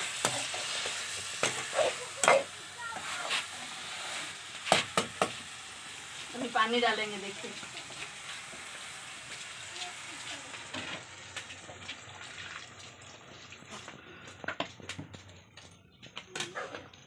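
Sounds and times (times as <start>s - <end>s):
spatula scraping a pan: 0.0s - 5.0s
curry sizzling in a pan: 0.0s - 14.3s
water pouring: 7.6s - 14.0s.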